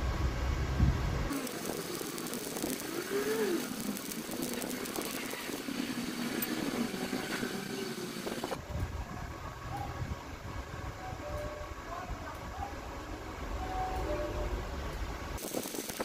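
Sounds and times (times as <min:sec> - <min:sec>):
welding arc crackling hiss: 0:01.3 - 0:08.6, 0:15.4 - 0:16.0.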